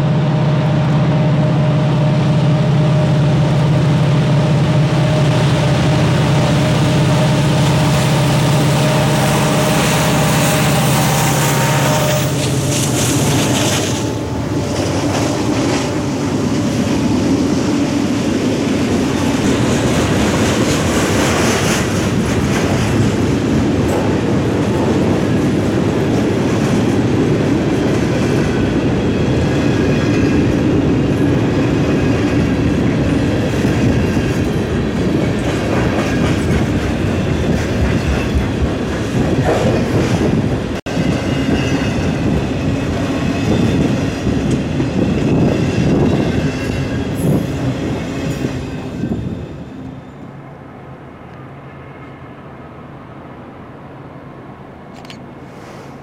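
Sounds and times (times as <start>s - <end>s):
freight train wheels rumbling: 0.0s - 56.0s
high wheel squeal: 8.0s - 14.2s.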